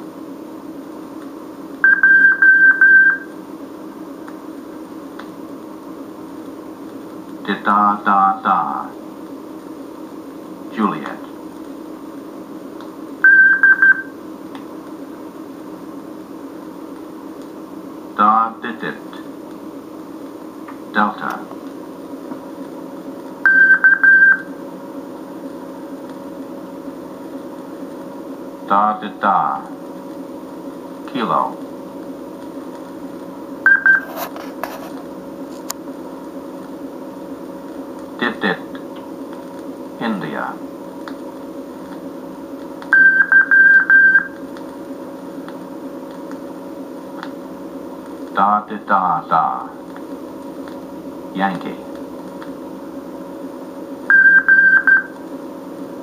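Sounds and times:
faint hum: 0.0s - 56.0s
record surface hiss: 0.0s - 56.0s
morse code beeps: 1.8s - 3.3s, 13.2s - 14.1s, 23.4s - 24.5s, 33.6s - 34.1s, 42.9s - 44.4s, 54.1s - 55.1s.

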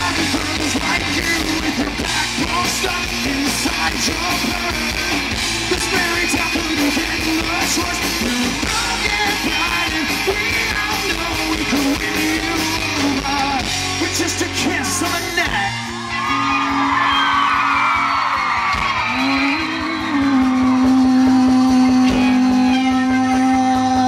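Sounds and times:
live rock band: 0.0s - 24.0s
male singer: 0.0s - 24.0s.

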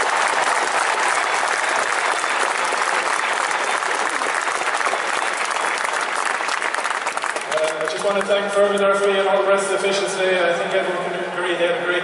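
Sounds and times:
stadium crowd applauding: 0.0s - 9.4s.

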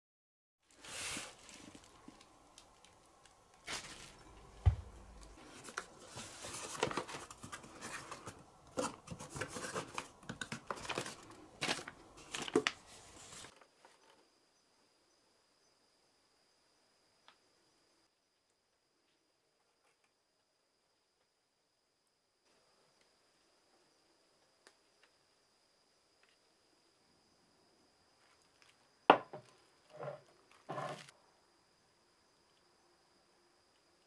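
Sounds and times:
bubble wrap and plastic crinkling: 0.6s - 13.6s
cardboard flaps rustling: 3.6s - 13.5s.

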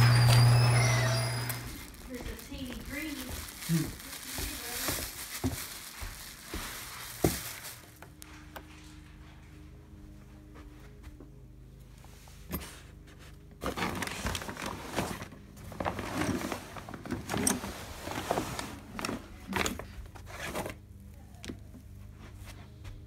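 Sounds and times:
backpack and papers rustling: 0.0s - 11.0s, 12.3s - 22.8s.

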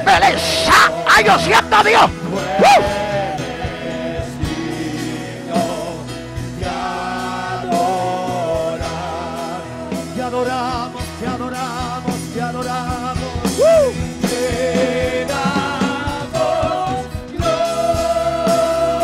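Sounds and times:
band with drums: 0.0s - 19.0s.

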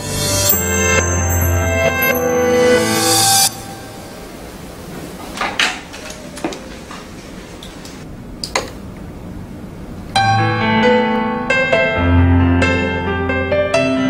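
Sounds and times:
piano music: 0.0s - 4.9s, 10.2s - 14.0s
steady background hiss: 3.1s - 10.2s.

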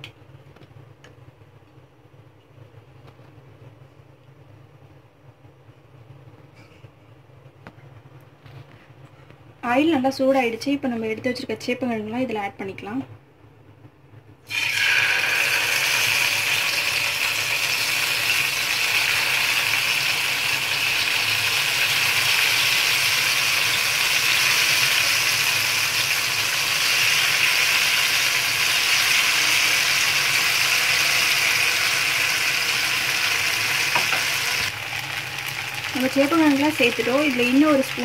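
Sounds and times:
food sizzling in hot oil: 14.5s - 38.0s.

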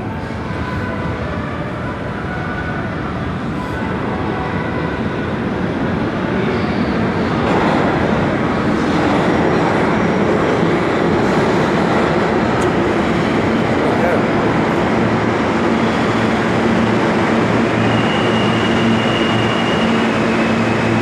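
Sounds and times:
subway train rumbling: 0.0s - 21.0s.

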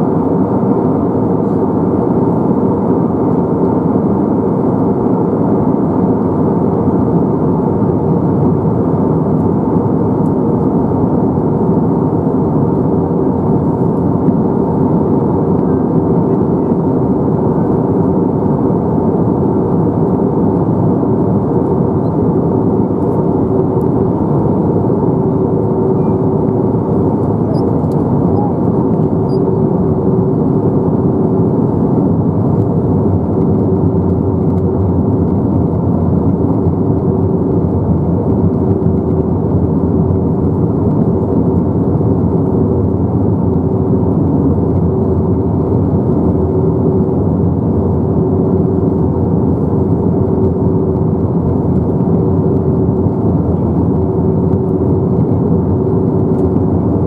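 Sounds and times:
jet engine hum: 0.0s - 57.0s
held drone tones: 27.2s - 29.4s.

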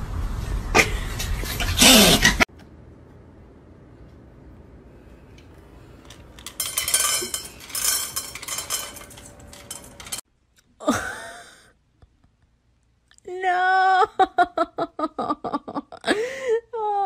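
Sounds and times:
hard objects clinking and knocking: 6.0s - 10.2s.

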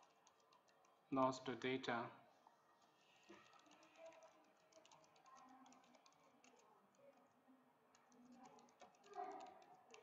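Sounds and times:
typing on computer keyboard: 0.0s - 1.0s, 3.3s - 7.3s, 7.9s - 10.0s.

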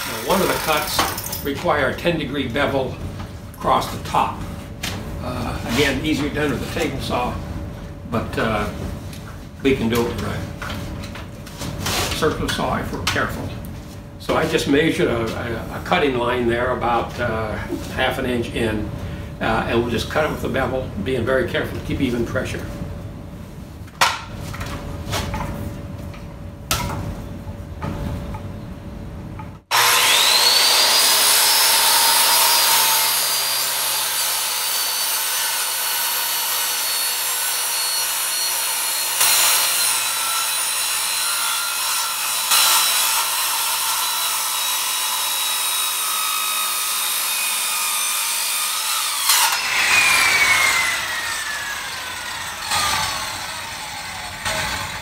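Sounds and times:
saw motor winding down: 0.0s - 0.9s, 29.7s - 55.0s
circular saw cutting wood: 0.0s - 1.1s, 29.7s - 55.0s.

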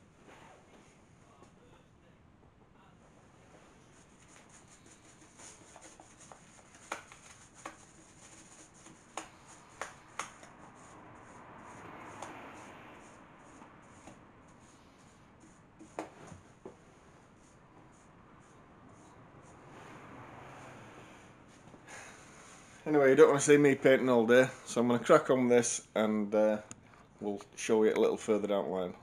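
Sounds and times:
paintbrush swishing on wood: 3.4s - 22.8s
sharp clicks and taps: 8.8s - 10.6s.

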